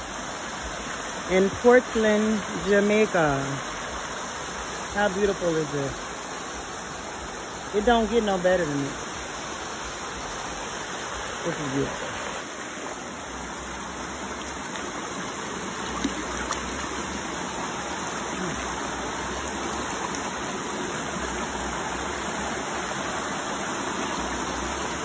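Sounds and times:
river rushing over rocks: 0.0s - 25.0s.

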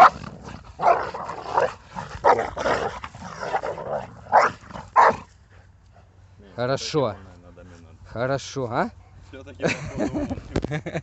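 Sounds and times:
dogs snarling: 0.0s - 5.3s
dog barking: 4.3s - 5.2s.

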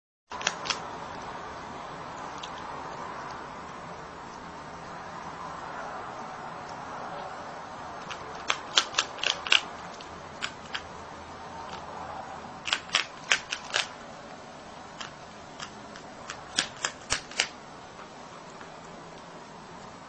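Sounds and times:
marmot crunching hard food: 0.3s - 0.9s, 2.2s - 2.7s, 8.0s - 11.0s, 12.6s - 14.1s, 14.8s - 17.6s.

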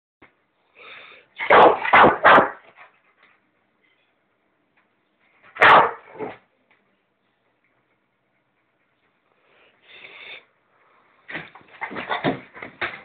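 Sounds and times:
dog barking: 1.4s - 2.6s, 5.6s - 6.3s.

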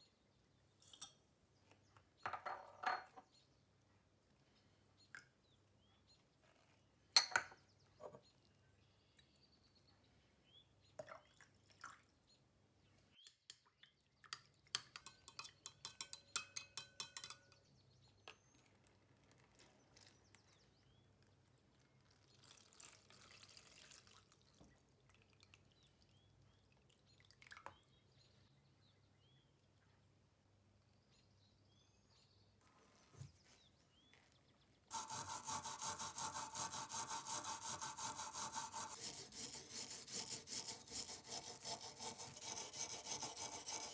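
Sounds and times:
liquid pouring: 22.0s - 25.7s
wire brush scrubbing metal: 34.9s - 43.9s.

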